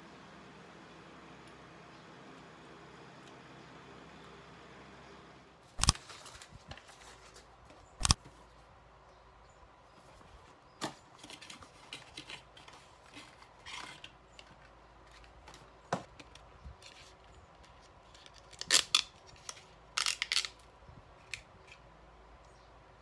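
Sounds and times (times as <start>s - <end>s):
packaging crinkling and rustling: 5.8s - 8.3s.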